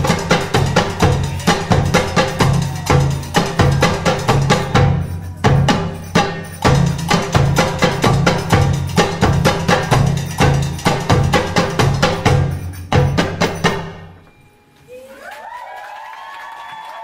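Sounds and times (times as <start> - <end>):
belly dance drum music: 0.0 - 14.2
audience cheering: 14.9 - 17.0.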